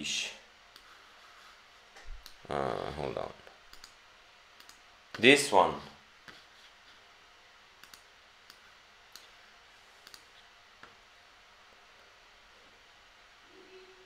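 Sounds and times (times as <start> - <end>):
faint computer mouse clicks: 3.7 - 4.0, 4.6 - 4.8, 7.8 - 9.3, 10.0 - 10.3.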